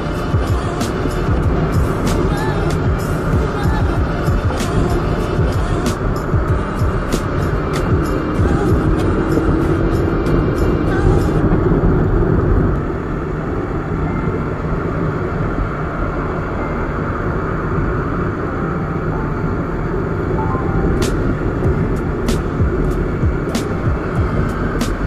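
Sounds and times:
wind on microphone: 0:00.0 - 0:25.0
motorcycle engine rumble: 0:19.0 - 0:25.0.

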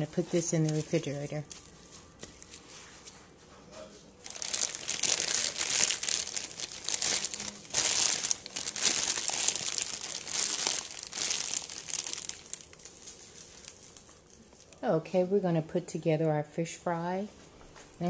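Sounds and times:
food wrap crinkling: 0:00.0 - 0:02.8, 0:04.2 - 0:14.8.

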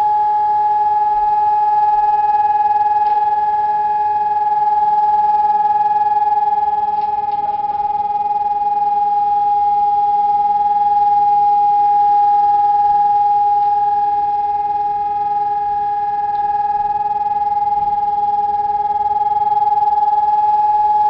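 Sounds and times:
siren steady tone: 0:00.0 - 0:21.0.

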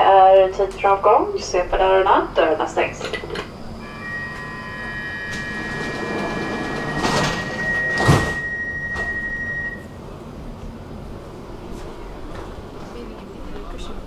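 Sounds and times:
sliding doors rushing: 0:03.2 - 0:09.8
steady high tone: 0:03.7 - 0:10.0
doors shutting thud: 0:05.3 - 0:09.2.

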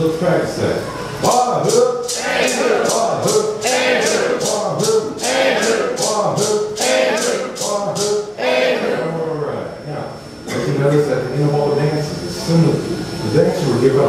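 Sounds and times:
rattle shaken in steady beat: 0:01.2 - 0:08.4
voices singing: 0:01.2 - 0:09.3.

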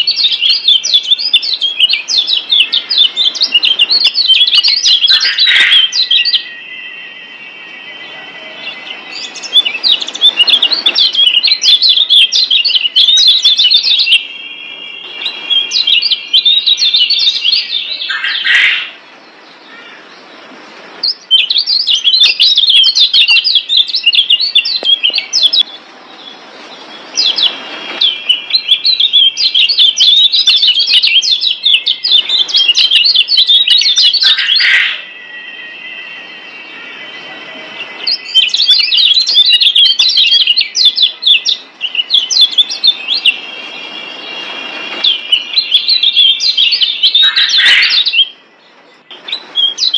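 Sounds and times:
bird chattering high chirps: 0:00.0 - 0:06.8, 0:15.1 - 0:19.0, 0:27.1 - 0:35.1, 0:44.2 - 0:48.4.

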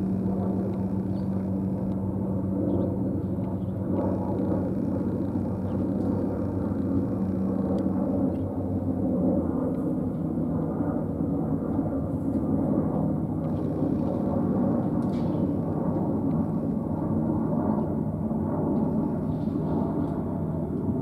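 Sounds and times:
low outdoor rumble: 0:00.0 - 0:21.0.

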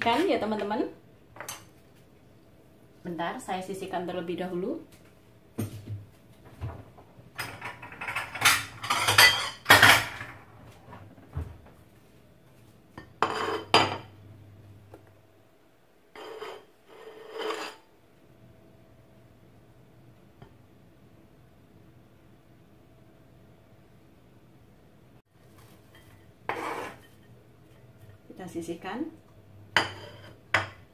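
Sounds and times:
dishes and cutlery clattering: 0:07.4 - 0:10.4.

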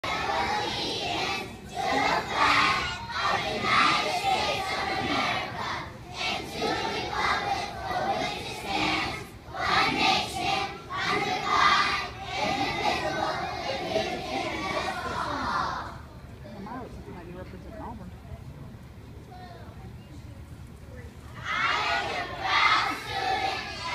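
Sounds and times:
children reciting in unison: 0:00.0 - 0:16.1, 0:21.4 - 0:23.9.

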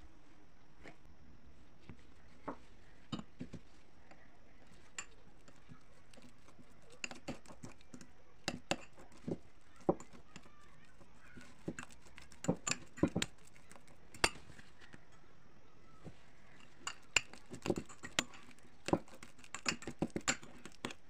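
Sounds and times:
fork mashing banana in bowl: 0:01.8 - 0:15.2, 0:16.0 - 0:21.0
fork tines clinking on bowl: 0:04.6 - 0:14.8, 0:16.5 - 0:21.0.

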